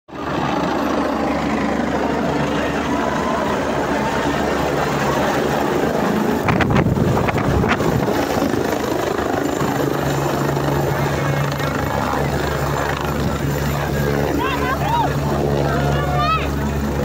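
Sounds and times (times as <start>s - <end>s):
helicopter rotor and turbine: 0.1s - 17.0s
wind buffeting microphone: 4.7s - 14.4s.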